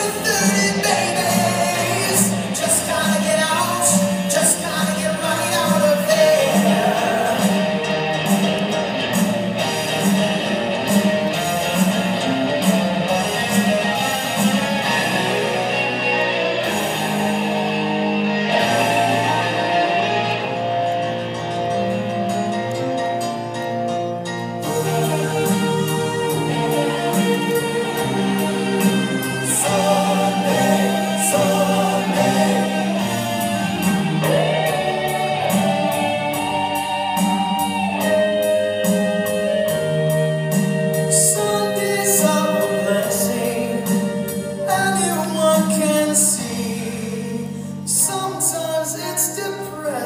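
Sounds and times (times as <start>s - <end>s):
gospel song with singing: 0.0s - 7.9s, 24.6s - 37.4s, 40.9s - 50.0s.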